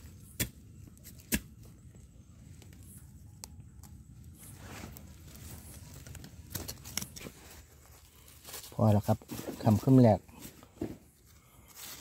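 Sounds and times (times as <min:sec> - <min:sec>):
rustling leaf litter: 0:04.3 - 0:10.5.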